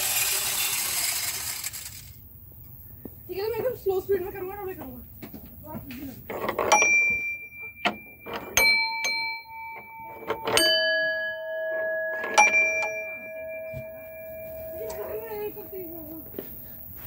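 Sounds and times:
dome bells ringing: 6.6s - 17.0s.

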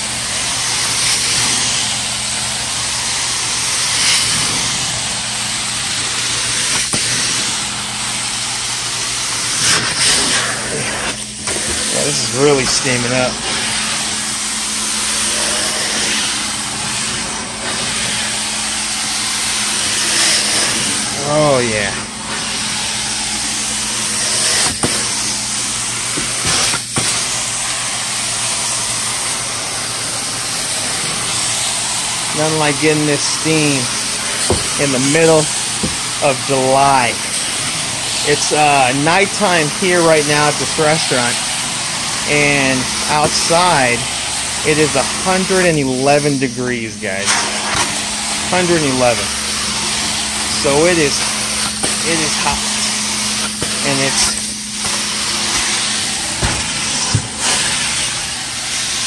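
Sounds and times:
hissing hot-water spray: 0.0s - 59.0s
vacuum suction rushing: 0.0s - 59.0s
steady low hum: 30.1s - 59.0s
water spray hissing: 31.2s - 59.0s.

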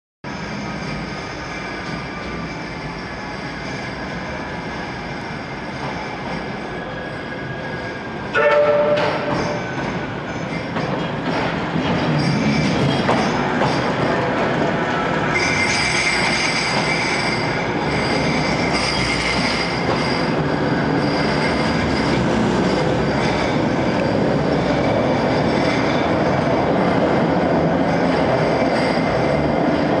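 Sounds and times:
tram rail running noise: 0.3s - 30.0s
high-pitched wheel squeal: 14.9s - 29.8s.

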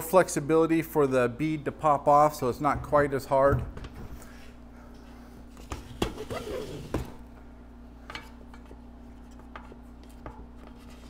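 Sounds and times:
rubber squeaking on rim: 6.0s - 7.1s.

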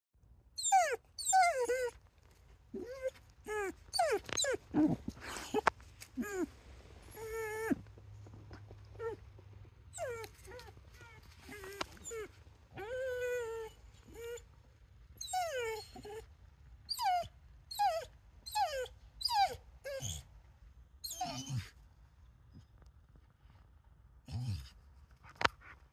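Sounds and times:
dog whining: 0.6s - 2.0s, 2.7s - 14.5s, 15.2s - 16.3s, 16.9s - 20.3s, 21.0s - 21.8s, 24.3s - 24.7s.

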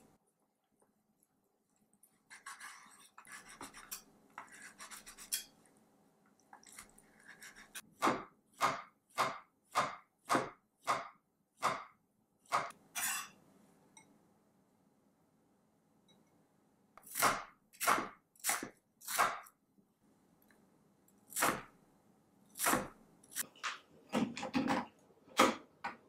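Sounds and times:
knife chopping on wooden board: 7.3s - 11.9s.

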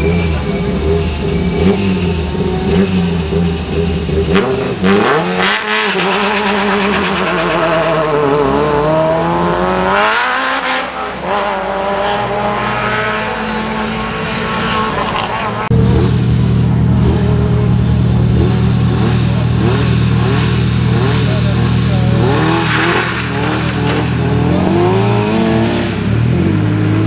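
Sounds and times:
rally car engine idling: 0.0s - 5.0s, 15.6s - 27.0s
rally car accelerating through gears: 0.0s - 16.2s, 18.2s - 27.0s.

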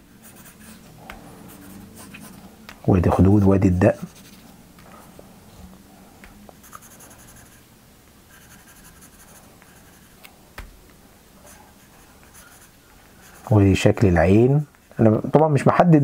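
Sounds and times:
pencil scratching on paper: 0.2s - 4.6s, 6.6s - 7.6s, 8.3s - 10.2s, 11.4s - 13.8s.

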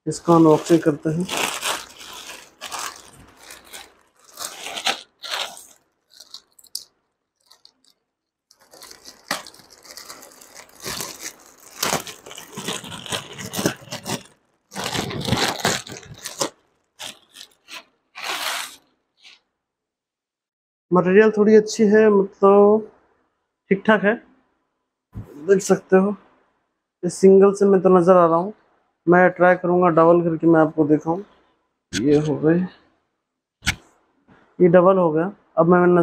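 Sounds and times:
plastic bag crinkling and tearing: 0.2s - 19.4s.

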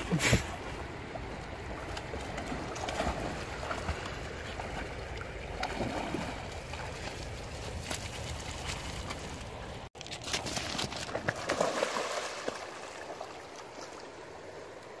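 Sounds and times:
splashing through water: 1.6s - 14.2s
river water rushing over gravel: 5.7s - 15.0s.

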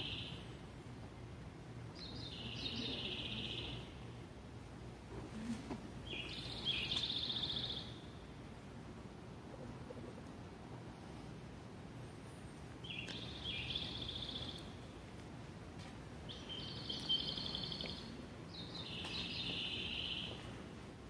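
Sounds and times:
low steady hum: 0.0s - 21.0s
high bird-like chirping: 16.3s - 20.4s.

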